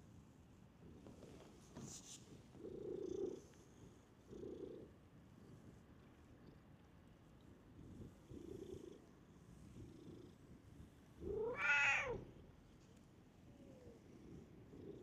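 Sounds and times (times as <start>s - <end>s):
cat purring: 2.3s - 12.7s, 13.3s - 15.0s
cat meowing: 11.2s - 12.3s.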